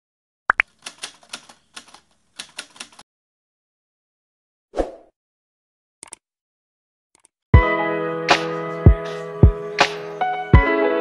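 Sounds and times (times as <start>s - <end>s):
rapid keyboard typing clicks: 0.6s - 3.0s.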